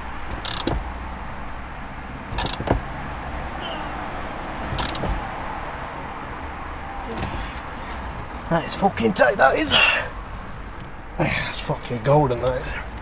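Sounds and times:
socket ratchet clicking: 0:00.3 - 0:00.9, 0:02.3 - 0:02.8, 0:04.7 - 0:05.2.

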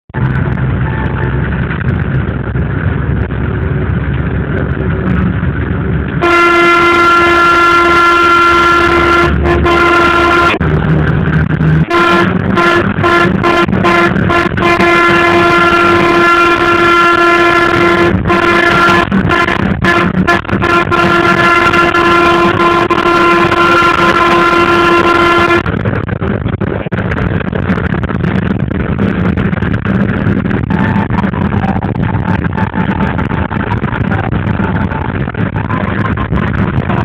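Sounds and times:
moving vehicle rumble: 0:00.0 - 0:37.0
loud vehicle horn: 0:06.2 - 0:10.6, 0:11.8 - 0:25.7, 0:30.6 - 0:37.0.

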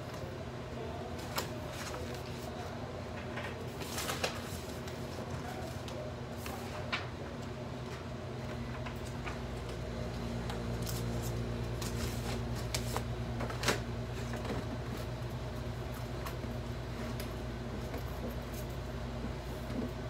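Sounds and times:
low mechanical hum: 0:00.0 - 0:20.0
paper rustling: 0:01.2 - 0:02.7, 0:03.4 - 0:07.0.

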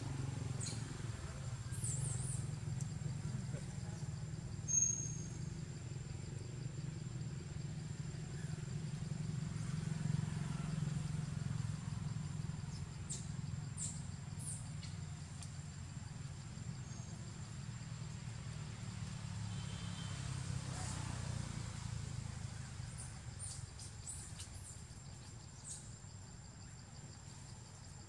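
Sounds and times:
distant engine hum: 0:00.0 - 0:28.0
bird chirps: 0:04.7 - 0:05.4.

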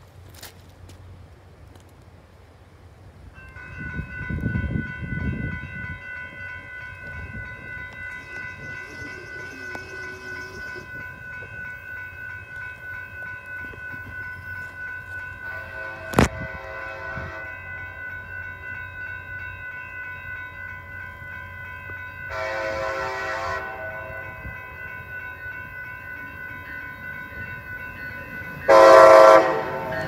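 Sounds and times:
railroad crossing bell ringing: 0:03.2 - 0:30.0
wind rumble on microphone: 0:03.6 - 0:11.7, 0:16.0 - 0:17.5.

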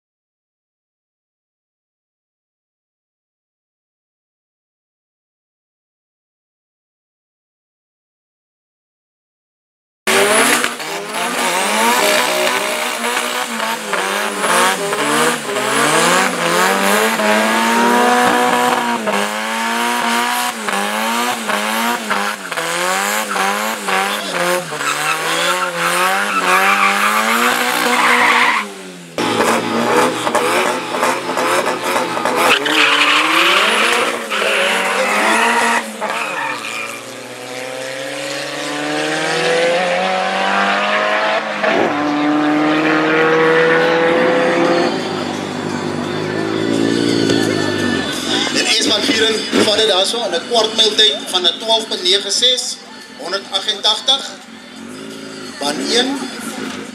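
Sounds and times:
engines revving hard: 0:10.1 - 0:52.6, 0:53.2 - 0:56.9
tyres squealing: 0:22.0 - 0:28.7, 0:30.2 - 0:37.4.

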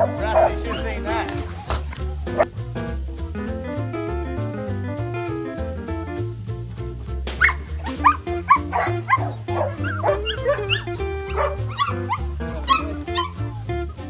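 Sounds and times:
dogs barking and yipping: 0:00.0 - 0:02.5, 0:07.3 - 0:14.0
background music: 0:00.0 - 0:14.0.

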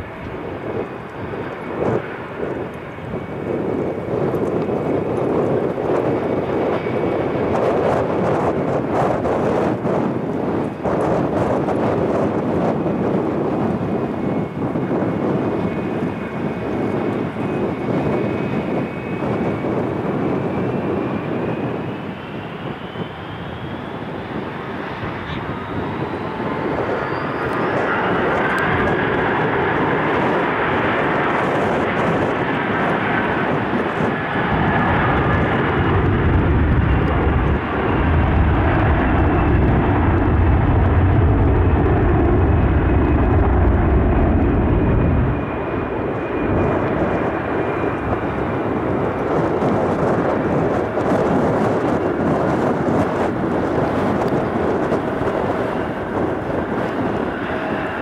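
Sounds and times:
jet engine roar: 0:00.0 - 0:58.0
jet engine whine: 0:00.0 - 0:58.0
deep rumble: 0:23.2 - 0:58.0.

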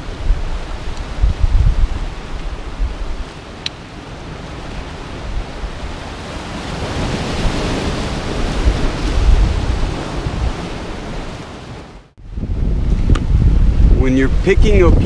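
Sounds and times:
wind buffeting microphone: 0:00.0 - 0:11.6, 0:12.2 - 0:15.0
surf breaking on rocks: 0:00.0 - 0:11.9.

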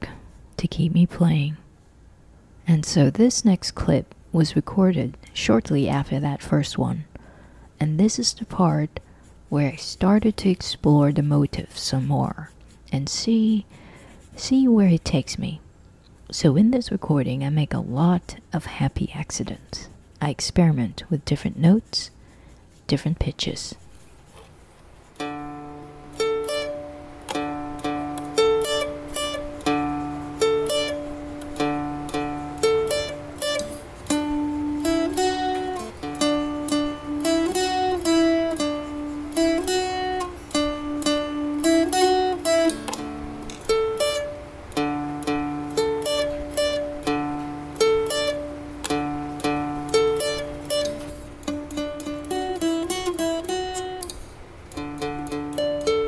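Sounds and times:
plucked dulcimer melody: 0:25.2 - 0:54.1, 0:54.7 - 0:56.0.

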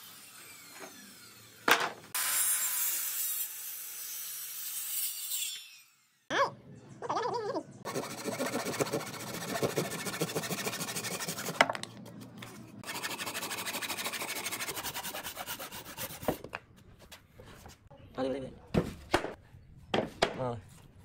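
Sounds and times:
hand saw cutting wood: 0:07.9 - 0:11.6, 0:12.8 - 0:16.4.

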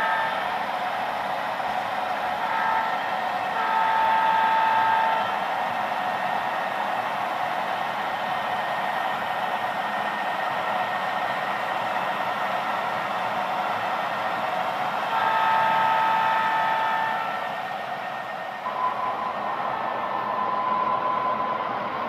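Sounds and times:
train horn chord: 0:00.0 - 0:00.6, 0:02.4 - 0:05.4, 0:15.1 - 0:17.6.

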